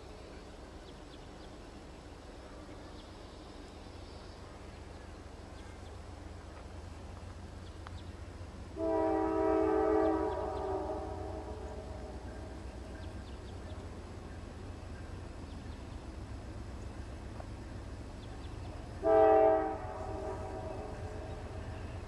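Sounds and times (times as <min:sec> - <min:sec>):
diesel locomotives rumbling: 0:00.0 - 0:22.0
locomotive air horn chord: 0:08.7 - 0:12.6, 0:19.0 - 0:21.8.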